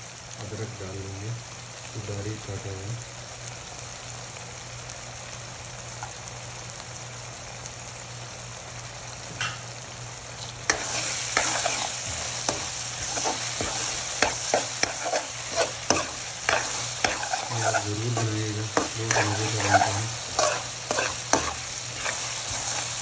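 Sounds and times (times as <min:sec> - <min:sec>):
vegetables sizzling in oil: 0:00.0 - 0:23.0
steel spoon scraping a pan: 0:10.7 - 0:23.0.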